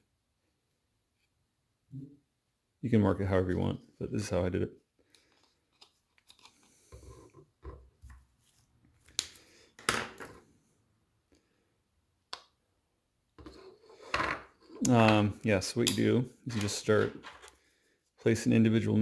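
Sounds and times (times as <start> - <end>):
faint knocks and scrapes: 5.2 - 8.7, 13.4 - 14.9, 16.5 - 18.3.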